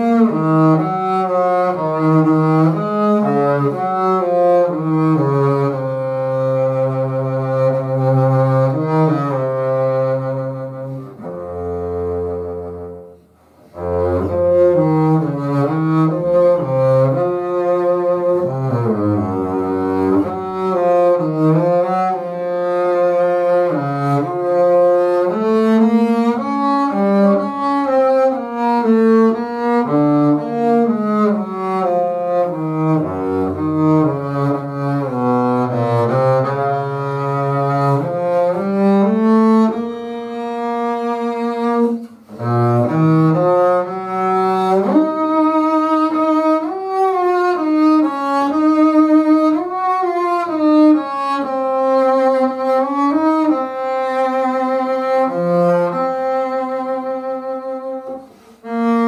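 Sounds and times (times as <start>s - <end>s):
bowed double bass melody: 0.0s - 59.0s.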